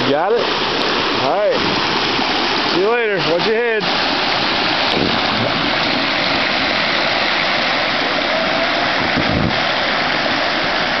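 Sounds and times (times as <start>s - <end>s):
river water rushing over rocks: 0.0s - 11.0s.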